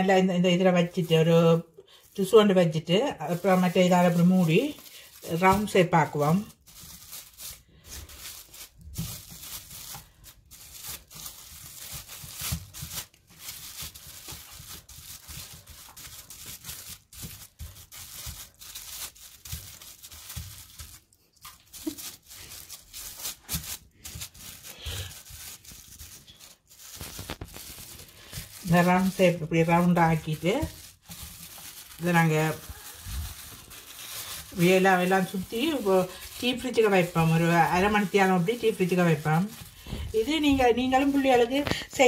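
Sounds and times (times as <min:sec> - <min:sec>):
plastic sheets crinkling: 0:00.0 - 0:42.0.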